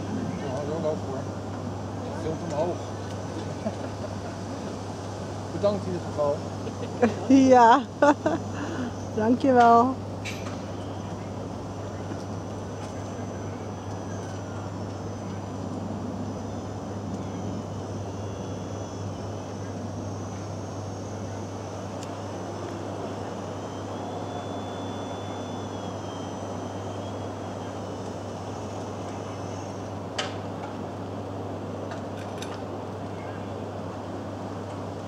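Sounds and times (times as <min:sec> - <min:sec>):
crane machinery humming: 0:00.0 - 0:35.0
high wavering whine: 0:00.0 - 0:35.0.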